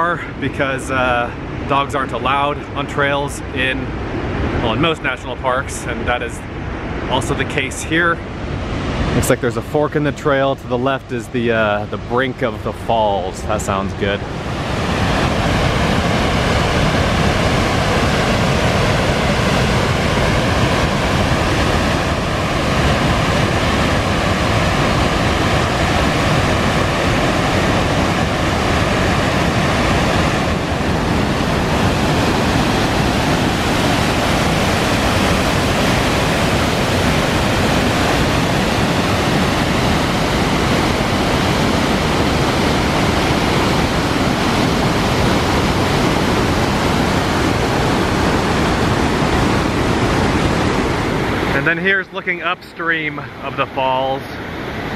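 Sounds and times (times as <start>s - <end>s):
waterfall rushing: 13.5s - 54.9s.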